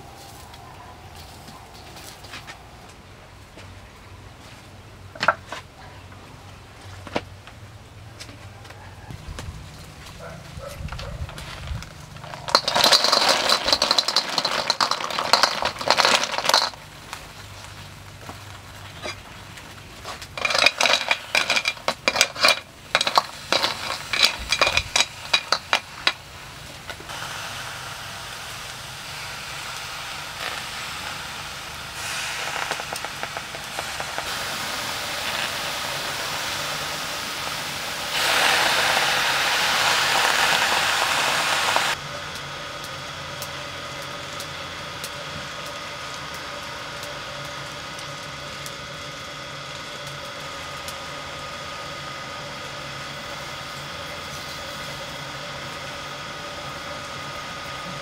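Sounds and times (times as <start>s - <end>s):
steady hiss: 0.0s - 3.5s, 11.2s - 58.0s
snail shells clinking in a wok: 12.1s - 17.2s, 20.0s - 27.1s.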